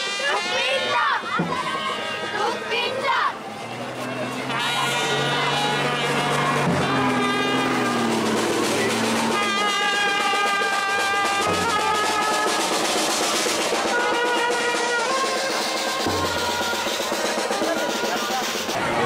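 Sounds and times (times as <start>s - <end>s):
band melody of long notes: 0.0s - 19.0s
bass drum beating: 5.1s - 19.0s
snare drum rolling: 5.8s - 19.0s.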